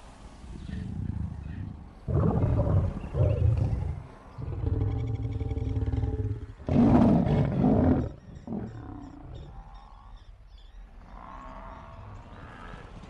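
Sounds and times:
lions growling and snarling: 0:00.5 - 0:09.8
lion grunt: 0:00.6 - 0:09.4.

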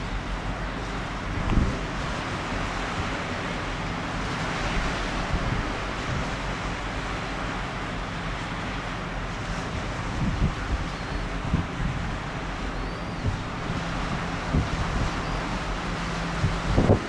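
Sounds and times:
river water rushing: 0:00.0 - 0:17.0
wind buffeting microphone: 0:00.0 - 0:17.0.

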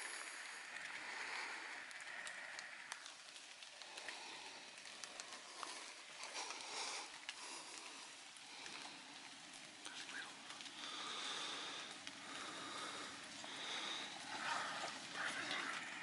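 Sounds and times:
rain pattering on leaves: 0:00.0 - 0:16.0.

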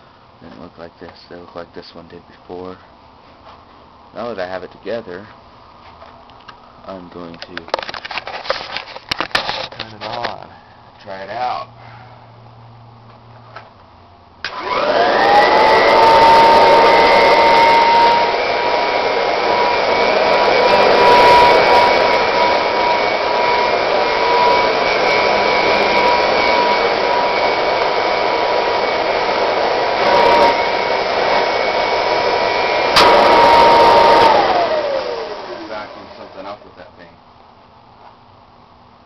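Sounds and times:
vacuum cleaner motor whine: 0:14.5 - 0:36.7.

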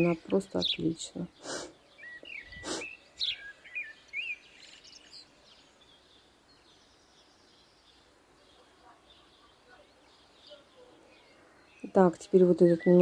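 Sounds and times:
small bird chirping: 0:00.0 - 0:13.0.

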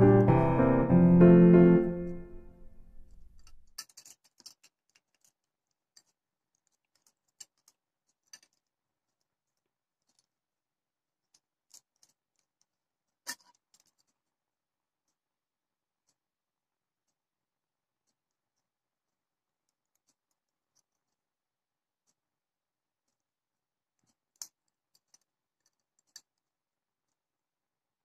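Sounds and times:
piano music: 0:00.0 - 0:03.3
small clicks and taps on a table: 0:24.0 - 0:27.2.

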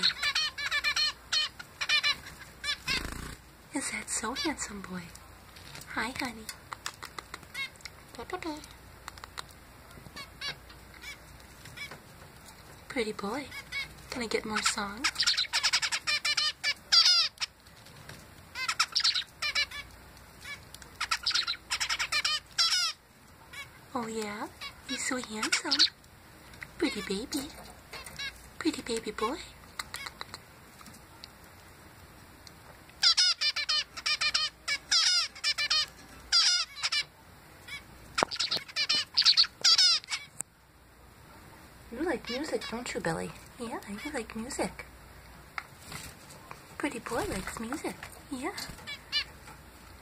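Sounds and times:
zebra finch singing: 0:00.0 - 0:05.2, 0:10.2 - 0:12.0, 0:12.9 - 0:17.6, 0:18.5 - 0:30.4, 0:33.0 - 0:40.4, 0:41.9 - 0:44.9, 0:46.5 - 0:49.5.

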